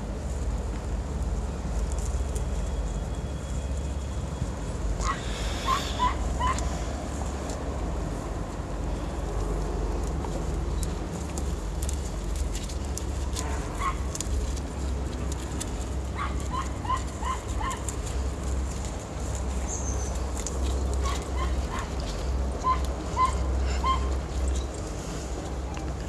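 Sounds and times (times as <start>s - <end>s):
dry grass crackling: 0.0s - 26.0s
wind rumble: 0.0s - 26.0s
distant high animal calls: 5.0s - 7.0s, 16.2s - 18.2s, 21.0s - 24.7s.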